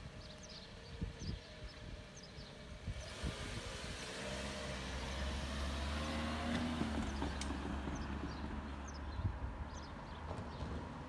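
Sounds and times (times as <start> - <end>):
car driving past: 3.1 - 9.1.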